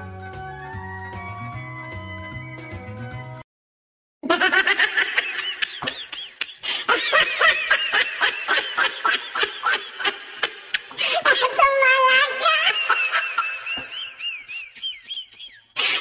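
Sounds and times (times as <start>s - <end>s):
high-pitched laughing: 4.2s - 16.0s.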